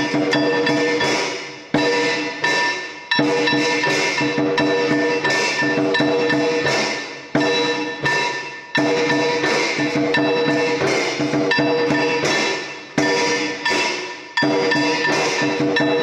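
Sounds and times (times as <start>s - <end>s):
sharp percussive strikes: 0.0s - 16.0s
held ringing tones: 11.5s - 16.0s.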